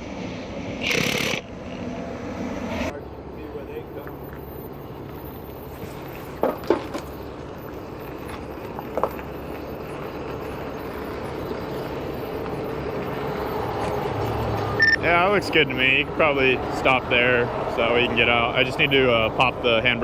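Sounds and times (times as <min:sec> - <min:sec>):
tow truck engine running: 0:00.0 - 0:20.0.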